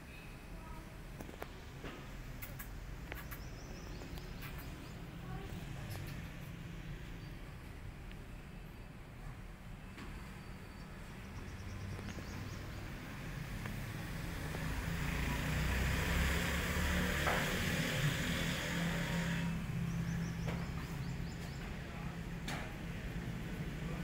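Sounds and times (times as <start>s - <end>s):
passing road traffic rush: 10.8s - 24.0s.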